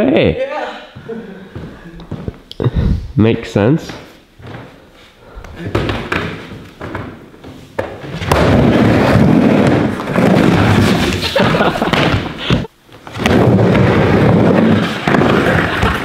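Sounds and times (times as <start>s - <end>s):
skateboard wheels rolling on wood: 5.7s - 16.0s.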